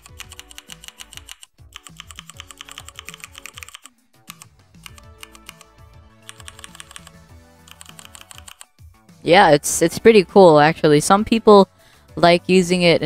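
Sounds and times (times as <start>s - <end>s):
mechanical keyboard typing clicks: 0.0s - 5.7s, 6.3s - 8.7s
background music: 0.0s - 13.0s.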